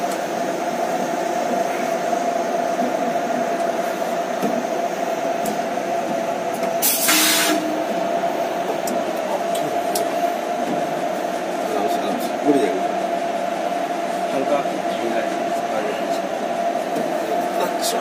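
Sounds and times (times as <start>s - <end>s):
high equipment whine: 0.0s - 18.0s
loud hiss: 6.8s - 7.7s.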